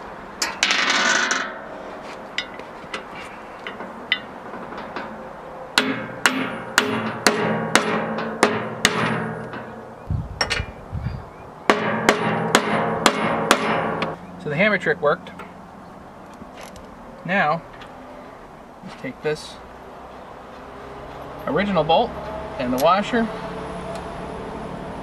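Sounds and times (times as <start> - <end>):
hammer striking metal: 5.8 - 10.7, 11.7 - 14.2.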